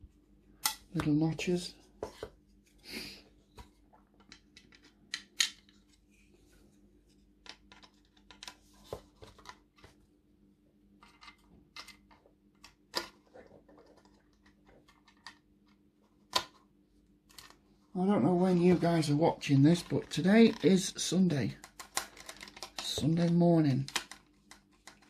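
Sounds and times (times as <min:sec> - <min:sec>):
plastic parts clicking: 0:04.2 - 0:05.8, 0:21.5 - 0:25.0.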